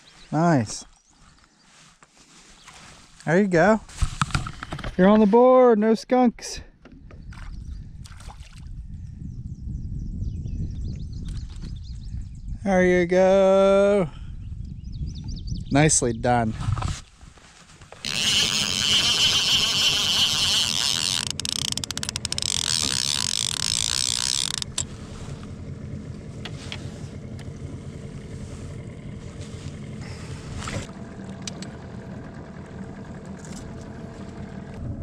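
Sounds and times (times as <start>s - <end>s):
boat motor running: 18.0s - 35.0s.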